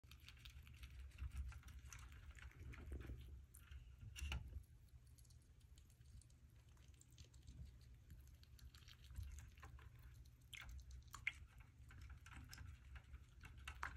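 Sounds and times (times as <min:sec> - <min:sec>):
low steady hum: 0:00.0 - 0:13.9
small clicks and taps: 0:08.5 - 0:13.9.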